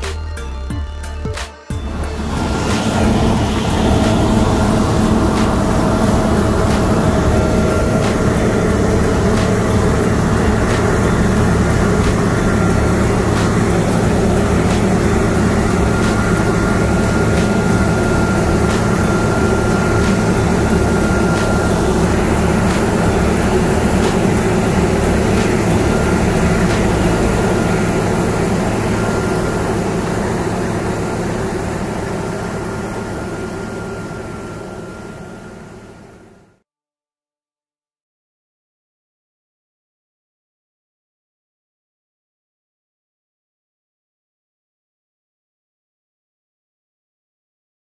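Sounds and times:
combine harvester drone: 0:01.3 - 0:36.6.

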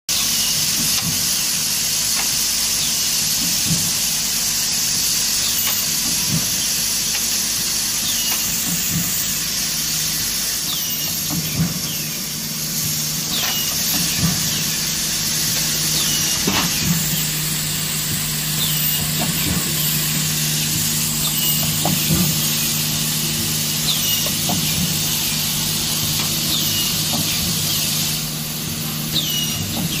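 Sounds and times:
machine clack: 0:00.1 - 0:09.4, 0:13.3 - 0:28.1
machine hiss and hum: 0:00.1 - 0:30.0.

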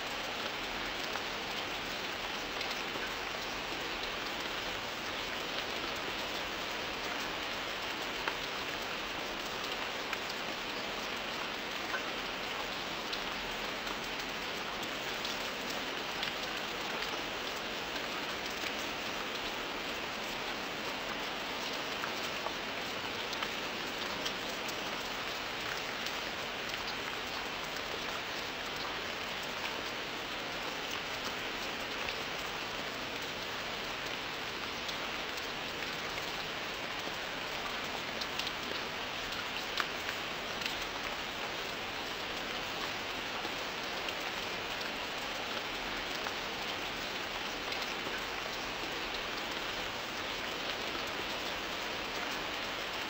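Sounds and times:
steady rain hiss: 0:00.0 - 0:53.0.

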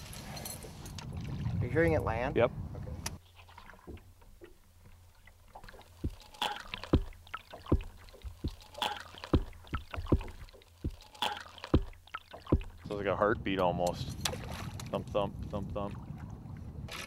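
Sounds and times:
underwater lure knocks: 0:09.3 - 0:11.0.

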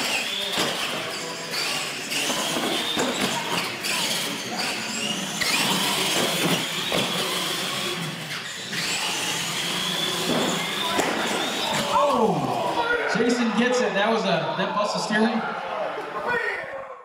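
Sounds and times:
knocks and thumps of toy trucks: 0:00.0 - 0:04.3, 0:05.5 - 0:07.9, 0:09.8 - 0:11.9
toy truck motors whining: 0:00.0 - 0:12.9.

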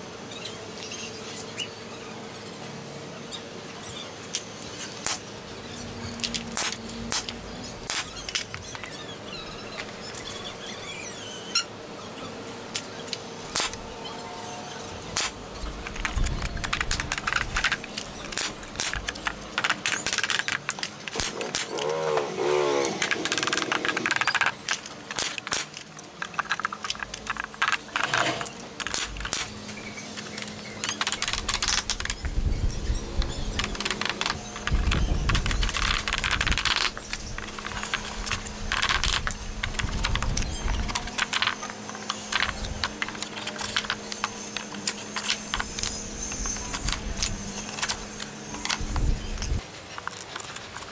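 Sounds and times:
wavering animal call: 0:21.3 - 0:24.4.

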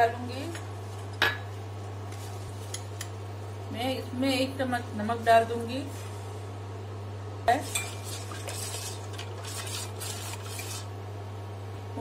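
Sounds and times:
spoon scraping pot bottom: 0:07.6 - 0:10.9.

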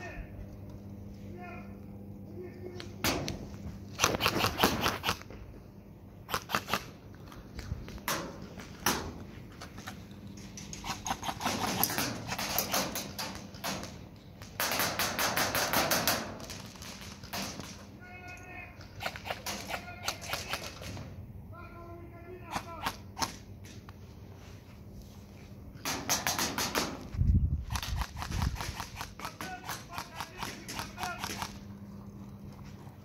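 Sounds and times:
airsoft rifles firing bursts: 0:03.9 - 0:05.3, 0:06.3 - 0:06.9, 0:10.8 - 0:13.9, 0:14.5 - 0:17.8, 0:19.0 - 0:21.0, 0:25.8 - 0:27.0, 0:27.6 - 0:31.6.

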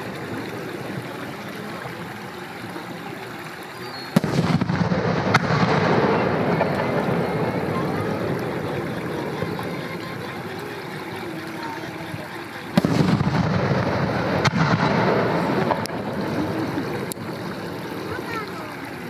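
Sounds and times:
firework shells bursting: 0:03.8 - 0:11.1, 0:12.1 - 0:18.2.

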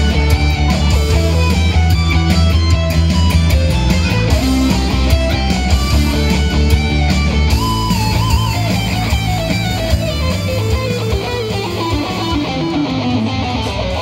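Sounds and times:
electric guitar lead melody: 0:00.0 - 0:14.0.

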